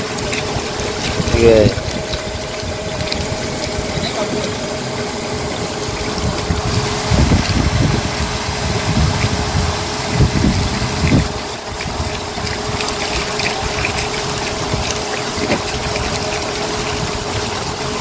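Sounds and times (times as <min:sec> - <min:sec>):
motor running: 0:00.0 - 0:18.0
rushing splashing water: 0:00.0 - 0:18.0.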